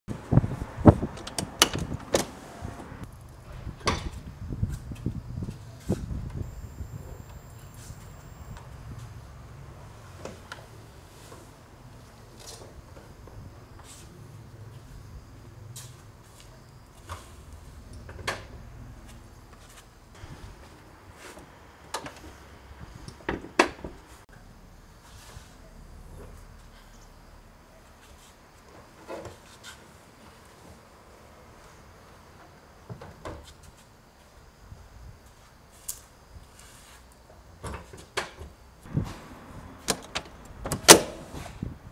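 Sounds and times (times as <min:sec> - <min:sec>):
latch clacking shut: 0:01.1 - 0:02.9, 0:03.8 - 0:04.2, 0:39.8 - 0:41.3.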